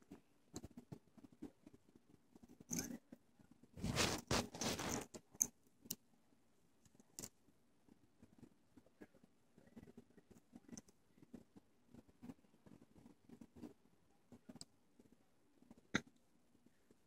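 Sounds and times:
metal bangles rustling and scraping: 3.8s - 5.5s.

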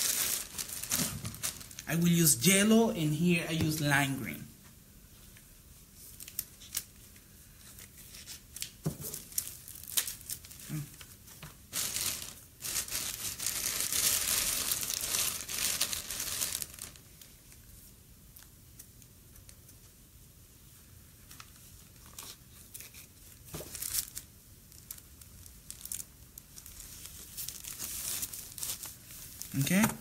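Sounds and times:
thin plastic crinkling: 0.0s - 1.9s, 6.0s - 19.8s, 21.2s - 29.9s.

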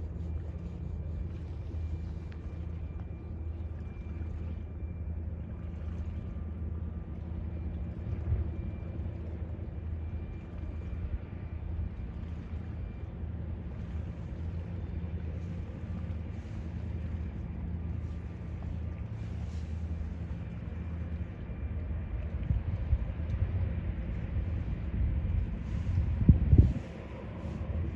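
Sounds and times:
faint steady tones: 0.0s - 27.9s
low drone of ship engines: 0.0s - 27.9s
wind buffeting microphone: 22.0s - 27.9s.

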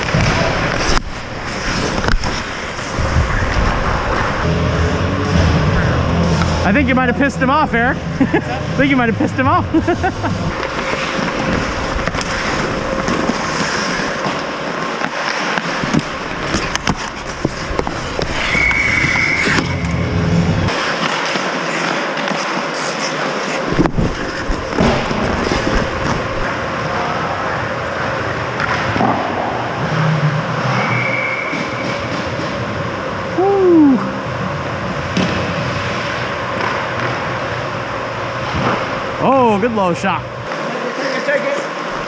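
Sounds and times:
skates scraping ice: 0.0s - 4.5s, 9.8s - 32.8s, 35.1s - 37.6s, 40.5s - 42.0s
hockey sticks and puck clacking: 10.4s - 19.9s, 20.7s - 26.6s, 28.6s - 29.3s, 30.6s - 32.6s, 35.1s - 37.5s.

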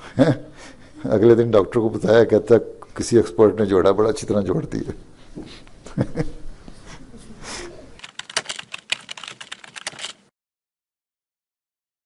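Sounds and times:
keyboard typing clicks: 8.0s - 10.2s.

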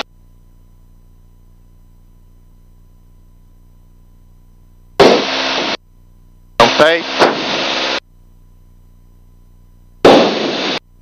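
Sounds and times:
radio hiss burst with click: 5.0s - 5.8s, 6.6s - 8.0s, 10.0s - 10.8s
aircraft engine hum over intercom: 6.6s - 9.8s.

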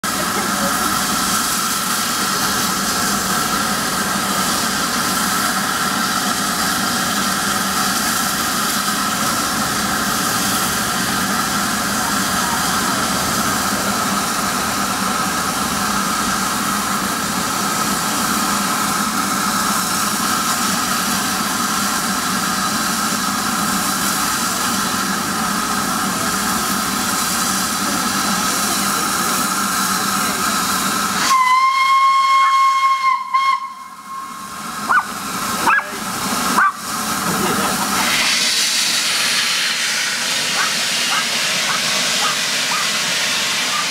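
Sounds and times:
steam hissing: 0.0s - 43.9s
steam whistle blast: 31.2s - 34.6s.

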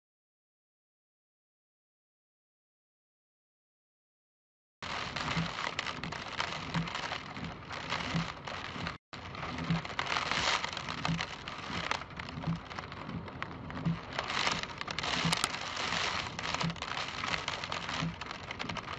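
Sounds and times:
rain pattering on window: 4.8s - 18.9s
wind gusts: 4.9s - 18.9s.

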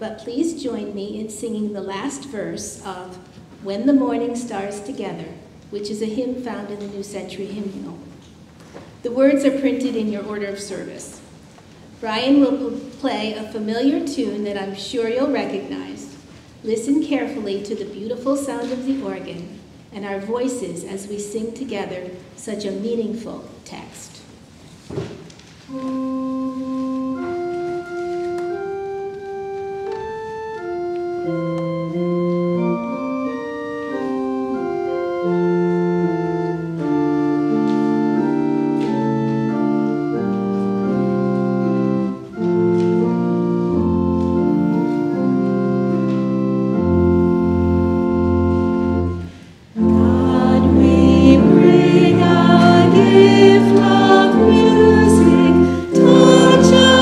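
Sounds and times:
pipe organ playing a hymn: 25.7s - 57.0s
congregation singing a hymn: 47.0s - 57.0s.

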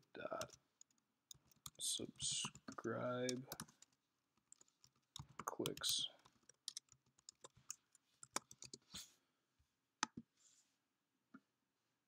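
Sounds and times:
keyboard typing: 0.0s - 8.9s.

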